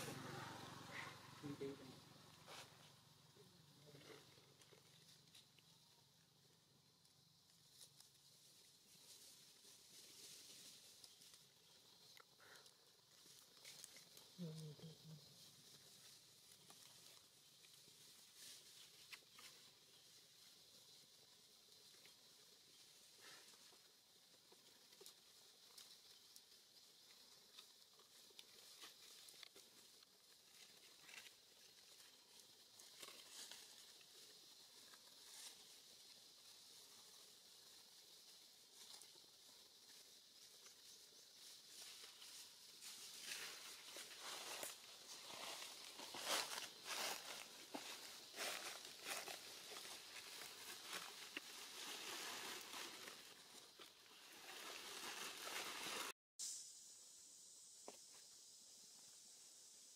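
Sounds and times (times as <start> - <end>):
faint rustling and crackling: 7.0 - 56.1
faint hiss: 28.7 - 59.9.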